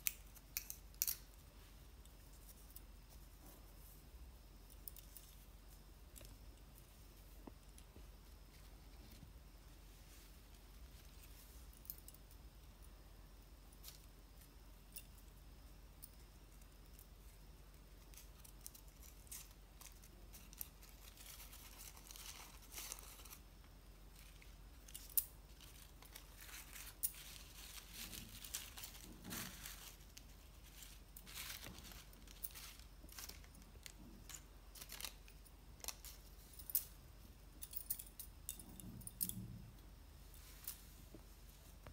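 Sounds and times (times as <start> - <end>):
paper rustling and crinkling: 18.1 - 23.4, 25.5 - 36.3.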